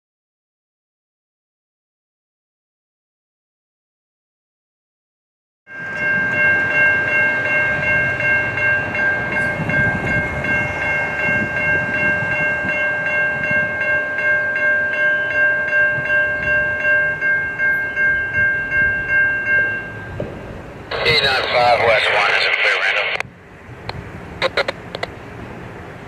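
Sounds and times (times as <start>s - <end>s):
crossing warning bell ringing: 5.7s - 21.4s.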